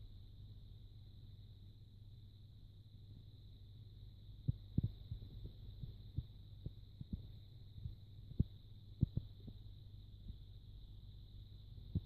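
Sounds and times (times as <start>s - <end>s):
faint high-pitched whine: 0.0s - 12.0s
soft low thumps: 4.4s - 10.5s.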